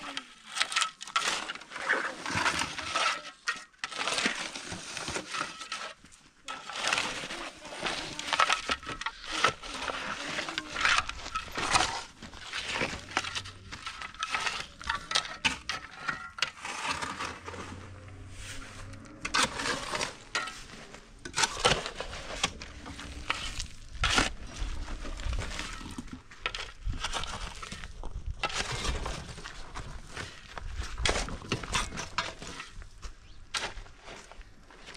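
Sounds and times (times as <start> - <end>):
shovel scraping into gravel: 0.1 - 34.9
small stones rattling: 0.2 - 18.0.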